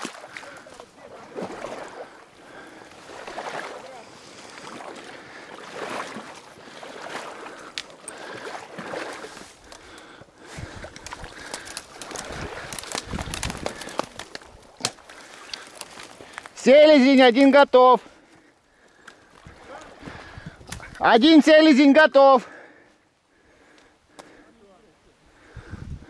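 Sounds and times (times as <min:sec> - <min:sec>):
water sloshing around legs: 0:00.0 - 0:16.4
heavy splashing: 0:00.0 - 0:18.0
dry reeds rustling and swishing: 0:02.9 - 0:21.3
sharp snaps of stems: 0:10.9 - 0:16.6.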